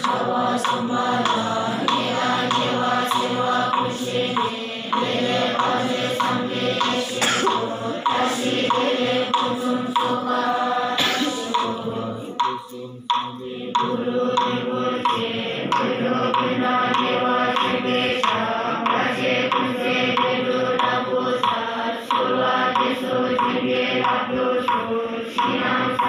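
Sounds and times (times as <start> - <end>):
monks chanting in unison: 0.0 - 26.0.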